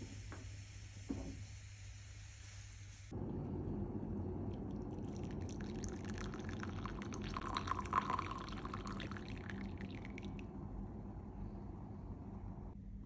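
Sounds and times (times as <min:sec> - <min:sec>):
coffee pouring into mug: 0:04.5 - 0:10.5.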